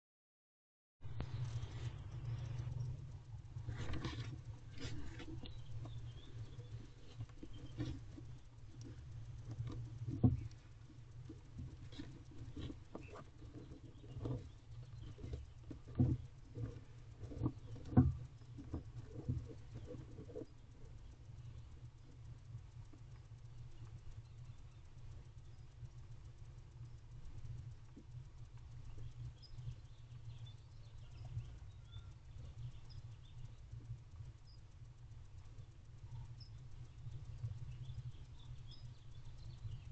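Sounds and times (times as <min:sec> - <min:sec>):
low steady rumble: 0:01.0 - 0:39.9
steady low hum: 0:01.0 - 0:39.9
owl scratching and rustling in box: 0:03.6 - 0:21.6.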